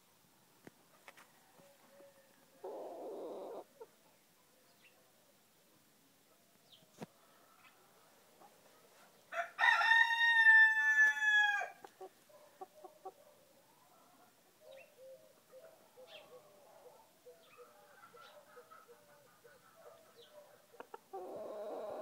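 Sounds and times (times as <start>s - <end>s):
rooster crowing: 9.3s - 11.8s.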